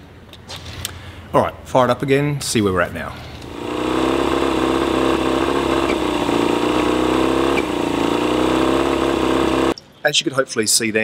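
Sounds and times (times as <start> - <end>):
outboard motor starting and idling: 3.4 - 9.8.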